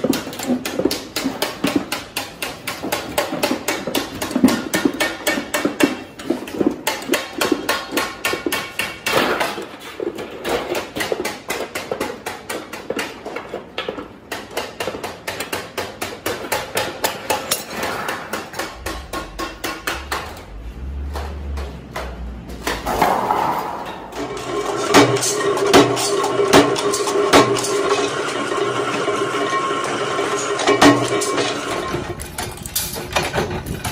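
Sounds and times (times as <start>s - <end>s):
rapid metallic knocking: 15.7s - 22.9s
low hum: 18.6s - 24.4s.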